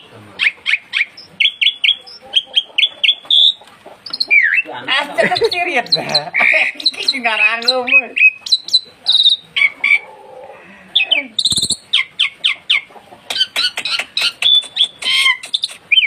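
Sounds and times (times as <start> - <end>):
bird whistled chirps: 0.4 - 2.2, 2.8 - 4.7, 5.9 - 9.8, 11.0 - 12.4, 13.3 - 16.0
harsh bird call: 10.9 - 16.0.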